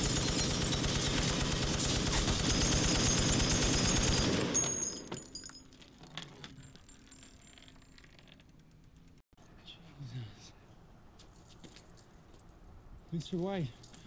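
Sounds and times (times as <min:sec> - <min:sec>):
machine gun automatic burst: 0:00.0 - 0:04.9
spent brass tinkling: 0:00.0 - 0:08.6, 0:11.2 - 0:14.0.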